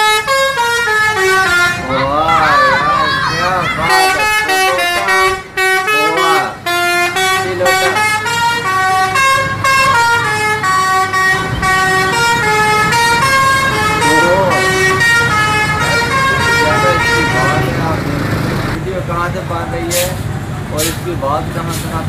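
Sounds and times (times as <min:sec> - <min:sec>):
multi-tone air horn tune: 0:00.0 - 0:02.0, 0:03.8 - 0:17.9.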